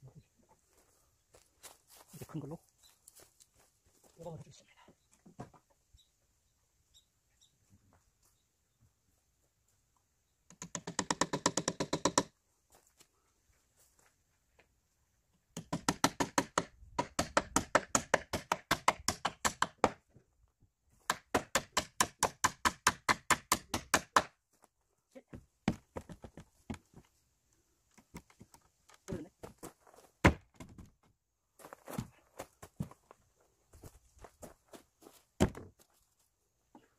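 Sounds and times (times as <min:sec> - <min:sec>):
hammer striking nails into wood: 0:10.6 - 0:12.3, 0:15.6 - 0:20.0, 0:21.1 - 0:24.3.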